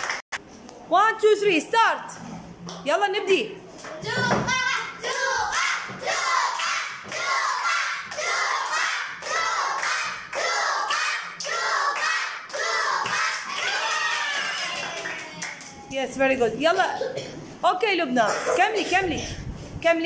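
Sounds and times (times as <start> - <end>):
children chanting: 4.0 - 15.4.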